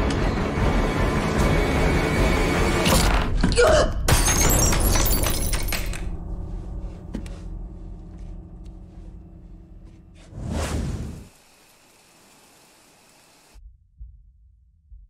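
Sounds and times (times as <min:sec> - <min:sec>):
glass shattering: 0:04.1 - 0:06.0.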